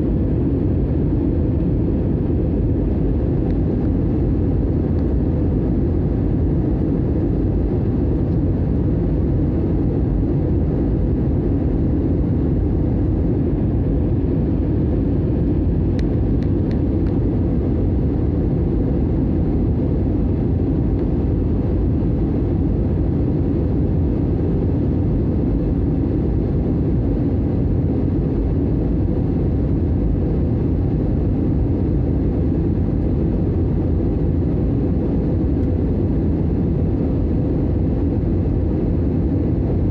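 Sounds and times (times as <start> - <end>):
jet airliner cabin rumble: 0.0 - 39.9.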